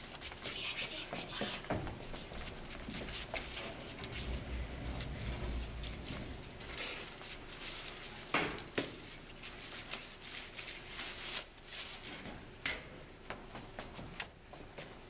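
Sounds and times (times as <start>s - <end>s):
footsteps on wooden floor: 0.4s - 6.8s
metal cart rolling and clattering: 3.2s - 8.3s.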